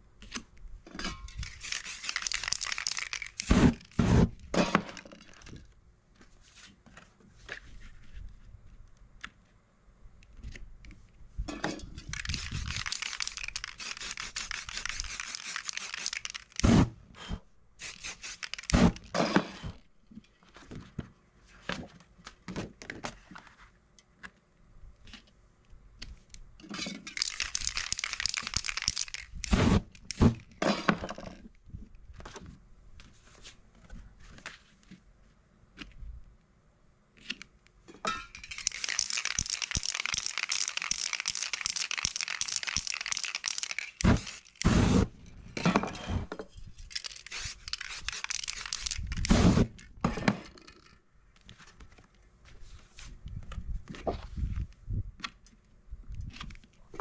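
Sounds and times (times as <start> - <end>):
spray paint can hissing: 1.4 - 4.0, 12.1 - 16.8, 17.8 - 19.0, 27.1 - 30.4, 38.4 - 45.1, 46.9 - 49.7
paper stencils rustling: 1.4 - 4.1, 12.1 - 16.7, 17.8 - 19.1, 27.1 - 30.4, 38.4 - 45.1, 46.9 - 49.7.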